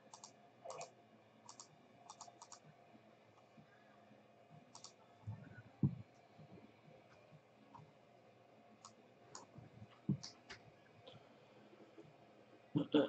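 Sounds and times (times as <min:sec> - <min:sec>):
faint computer mouse clicks: 0:01.5 - 0:02.6, 0:04.7 - 0:05.0.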